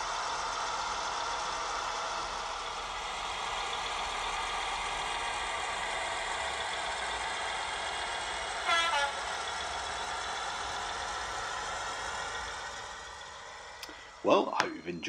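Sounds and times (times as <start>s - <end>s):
diesel engine running from small speaker: 0.0s - 15.0s
train horn blast: 8.6s - 9.3s.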